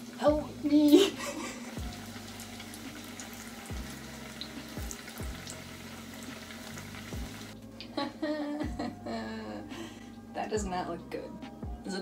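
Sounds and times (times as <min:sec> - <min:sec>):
oil sizzling with crackling pops: 0:00.0 - 0:07.9.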